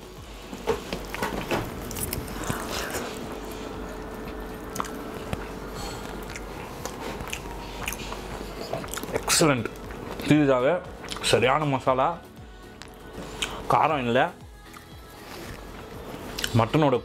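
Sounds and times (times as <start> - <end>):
person chewing food: 0.7 - 10.3, 10.9 - 11.4, 12.6 - 13.6, 14.5 - 16.6
wet mouth clicks: 4.7 - 5.5, 6.2 - 9.8.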